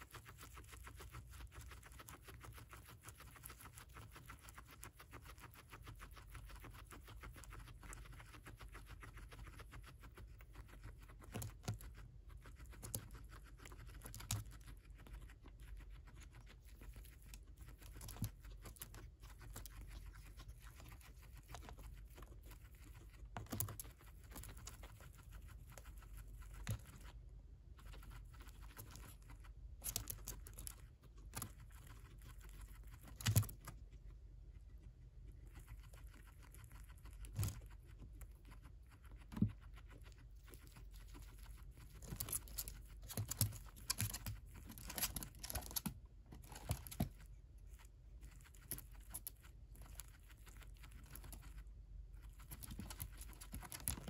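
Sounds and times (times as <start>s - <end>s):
guinea pig chewing: 0.0s - 54.0s
dry husk snapping and rustling: 29.8s - 33.8s, 40.5s - 47.3s.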